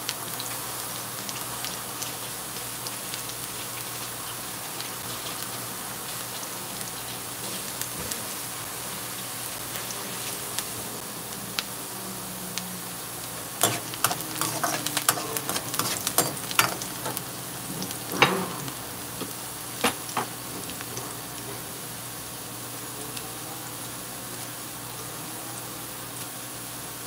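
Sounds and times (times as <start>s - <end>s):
onions sizzling in hot oil: 0.0s - 27.0s
spoon scraping a pan: 13.6s - 18.8s.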